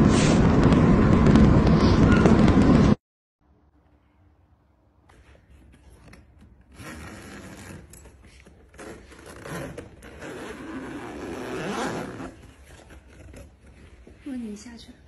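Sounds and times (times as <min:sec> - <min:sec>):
zipper being pulled: 0:06.7 - 0:14.1.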